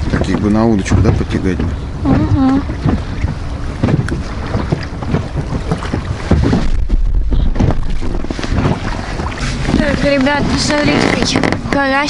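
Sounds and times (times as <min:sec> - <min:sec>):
water lapping against hull: 0:00.0 - 0:12.0
wind buffeting microphone: 0:00.0 - 0:12.0.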